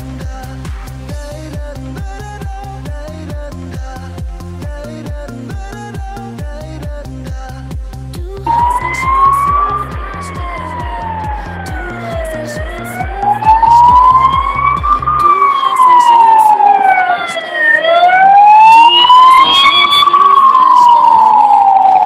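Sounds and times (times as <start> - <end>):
ambulance siren wailing: 8.4 - 22.0.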